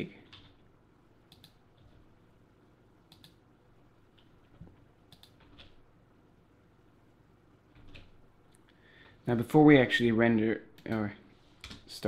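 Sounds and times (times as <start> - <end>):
keyboard and mouse clicking: 1.3 - 2.0, 3.1 - 3.4, 4.1 - 5.8.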